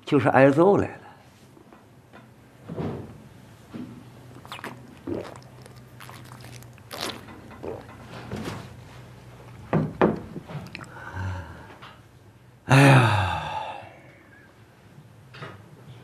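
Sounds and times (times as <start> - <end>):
man groaning: 12.7 - 14.0.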